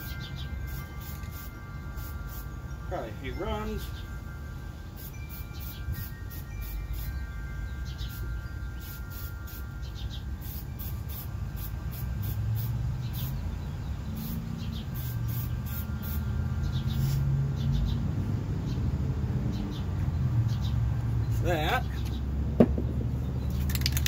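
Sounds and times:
spray paint can hissing: 0:00.7 - 0:02.5, 0:05.0 - 0:07.1, 0:08.8 - 0:09.7, 0:10.4 - 0:13.4, 0:14.2 - 0:16.3.

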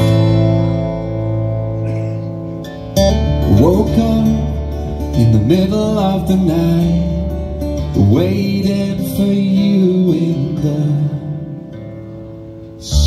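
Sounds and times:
strummed acoustic guitar: 0:00.0 - 0:13.0
man singing: 0:03.3 - 0:11.8, 0:12.8 - 0:13.0.

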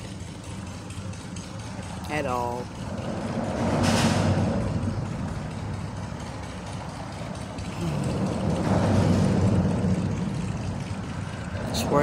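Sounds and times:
road traffic rumbling: 0:00.0 - 0:12.0
vehicle passing: 0:01.6 - 0:12.0.

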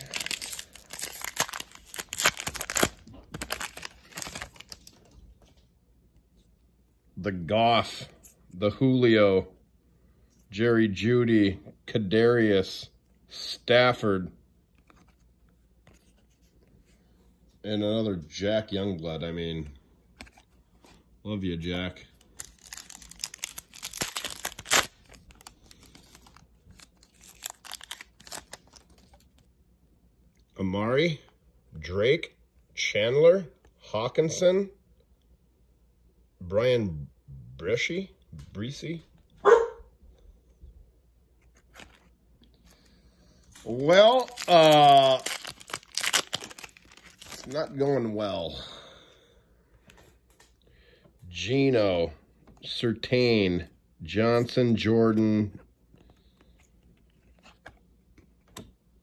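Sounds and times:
foil wrapper crinkling and tearing: 0:00.0 - 0:05.0, 0:22.2 - 0:29.4, 0:43.5 - 0:47.9.

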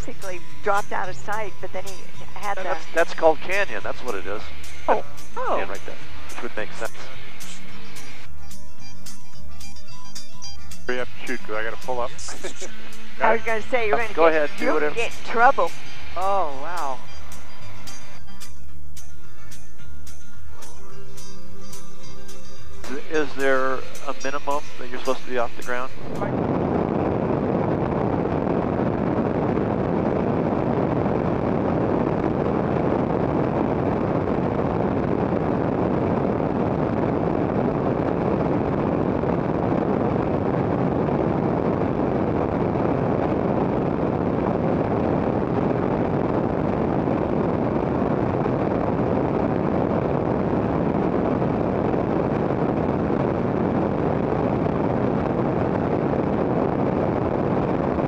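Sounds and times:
propeller aircraft engine in flight: 0:00.0 - 0:58.0
wind buffeting microphone: 0:21.0 - 0:58.0.

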